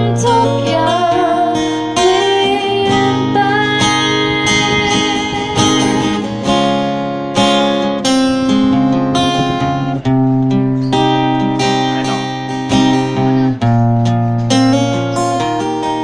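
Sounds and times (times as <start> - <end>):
woman singing: 0.0 - 6.6
acoustic guitar strumming: 0.0 - 16.0.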